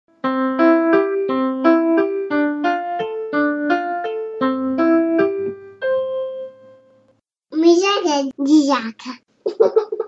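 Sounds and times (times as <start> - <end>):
keyboard melody: 0.1 - 7.2.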